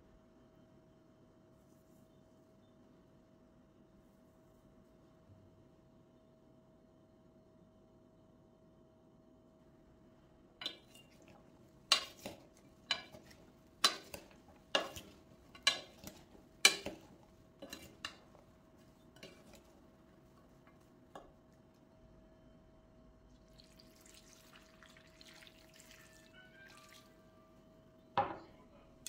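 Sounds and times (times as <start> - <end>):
spoons knocking a frying pan: 11.9 - 18.3.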